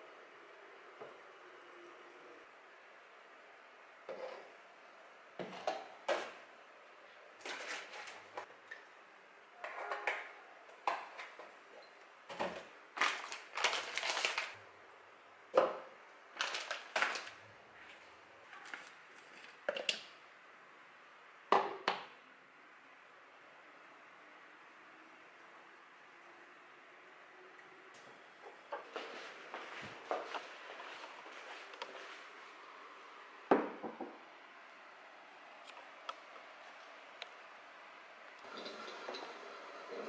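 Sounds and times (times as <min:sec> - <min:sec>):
frozen fruit rattling: 0:13.0 - 0:14.6.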